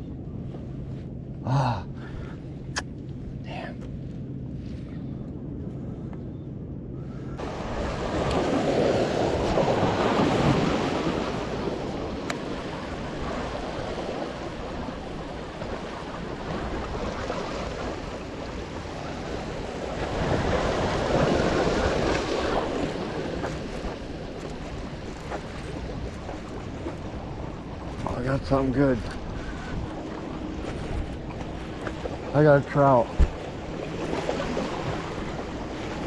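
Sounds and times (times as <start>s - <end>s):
small waves breaking on rocks: 7.4s - 36.0s.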